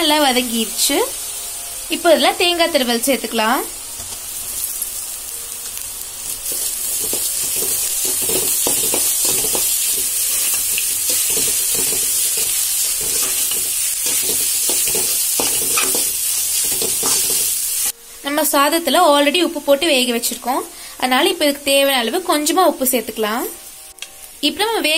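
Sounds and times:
coconut sizzling in hot oil: 0:00.0 - 0:18.1
spatula scraping a pan: 0:06.4 - 0:17.9.

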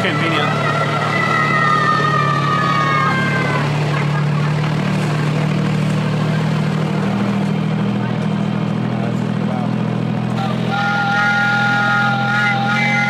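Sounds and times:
miniature train engine drone: 0:00.0 - 0:13.0
high two-tone squeal: 0:10.4 - 0:13.0.

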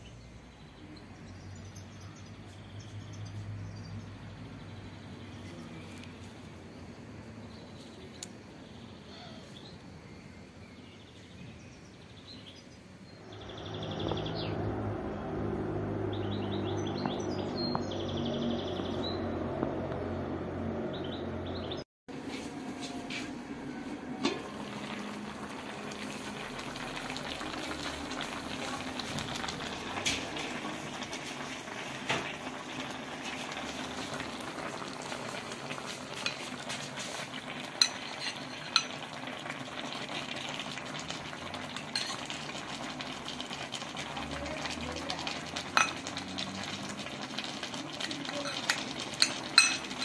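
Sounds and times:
pot bubbling: 0:23.8 - 0:50.0
lid and spoon clinking on pot: 0:37.8 - 0:39.0, 0:45.8 - 0:46.1, 0:48.4 - 0:50.0.

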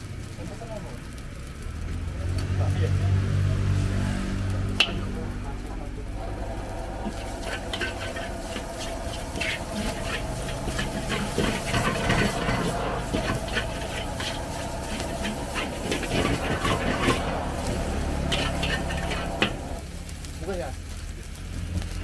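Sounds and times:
food sizzling: 0:00.0 - 0:22.0
metal spatula scraping wok: 0:03.8 - 0:05.3, 0:06.0 - 0:19.9
steady low hum: 0:04.8 - 0:20.2.

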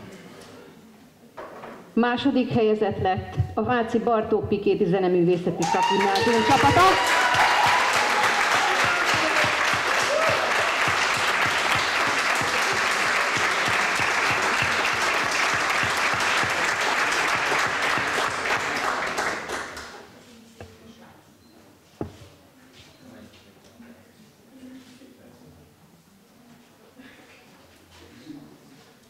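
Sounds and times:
audience applauding: 0:05.6 - 0:20.0.

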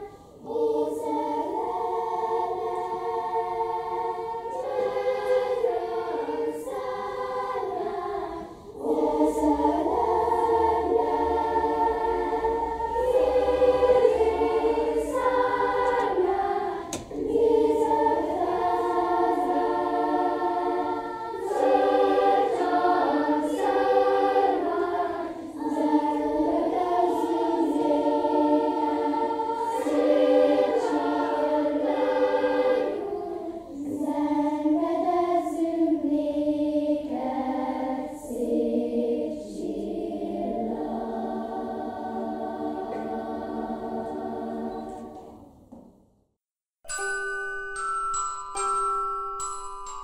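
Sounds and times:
children's choir singing: 0:00.0 - 0:46.0
tinkling bell-like tune: 0:46.8 - 0:50.0.

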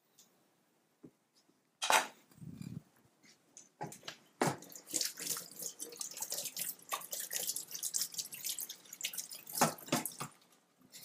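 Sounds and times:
water splashing: 0:04.5 - 0:10.5
tap running into sink: 0:09.5 - 0:10.4.

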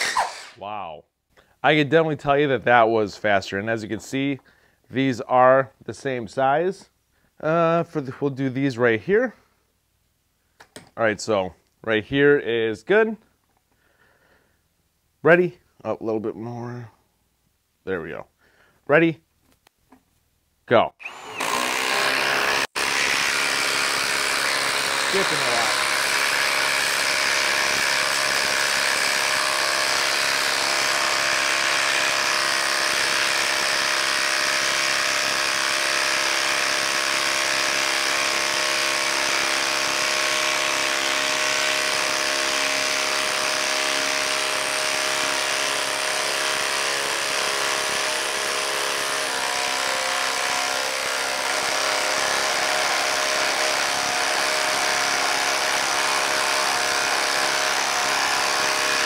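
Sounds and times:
impact driver hammering: 0:21.0 - 0:59.0.

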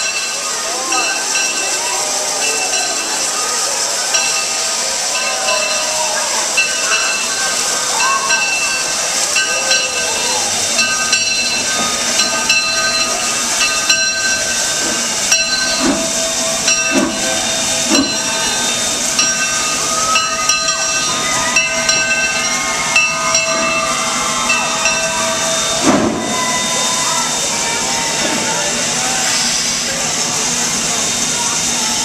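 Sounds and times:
steam hissing: 0:00.0 - 0:32.0
short high tones: 0:09.8 - 0:27.8.

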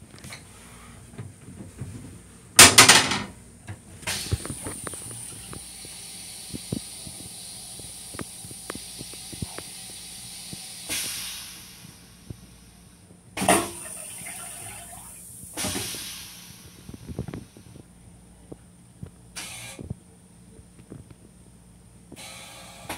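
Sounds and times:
toilet draining hiss: 0:04.0 - 0:17.7, 0:19.4 - 0:19.8, 0:22.2 - 0:22.9
toilet flush whoosh: 0:13.4 - 0:16.7.

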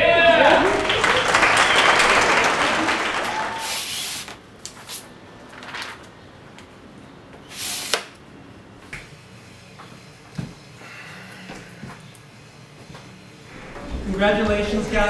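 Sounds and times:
audience applause: 0:00.0 - 0:03.7
brief hissing sounds: 0:03.6 - 0:04.4, 0:07.5 - 0:08.0.

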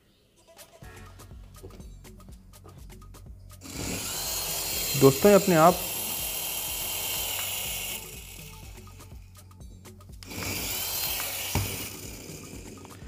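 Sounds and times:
toy helicopter motors whirring: 0:03.5 - 0:09.5, 0:10.2 - 0:13.0.

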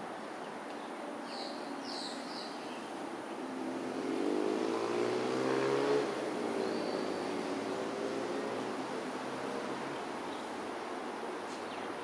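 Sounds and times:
distant traffic hum: 0:00.0 - 0:12.0
vehicle engine approaching: 0:03.7 - 0:08.9.

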